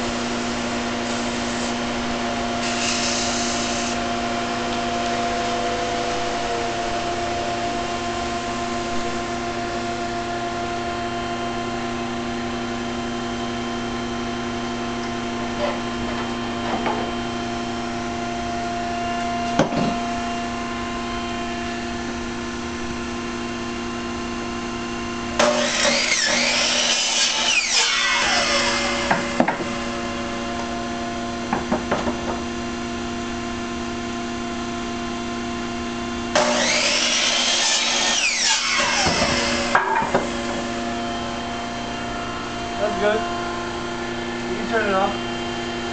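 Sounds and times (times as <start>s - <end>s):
miter saw cutting wood: 0.0s - 10.8s, 25.4s - 31.5s, 36.3s - 43.5s
steady machine hum: 0.0s - 45.9s.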